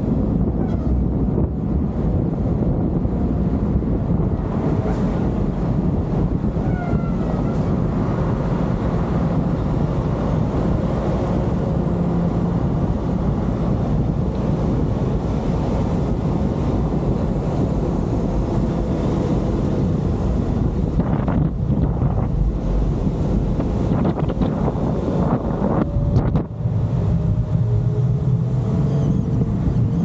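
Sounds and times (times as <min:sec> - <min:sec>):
car road noise rumble: 0:00.0 - 0:30.0
wind on microphone: 0:00.0 - 0:30.0.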